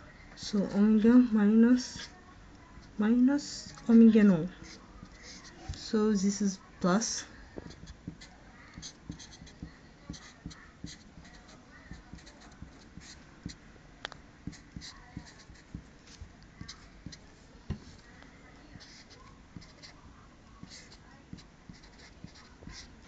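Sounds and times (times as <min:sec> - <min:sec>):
pen scratching on paper: 0:03.4 - 0:05.8, 0:07.6 - 0:13.6, 0:14.4 - 0:18.1, 0:18.8 - 0:20.0, 0:20.6 - 0:22.9.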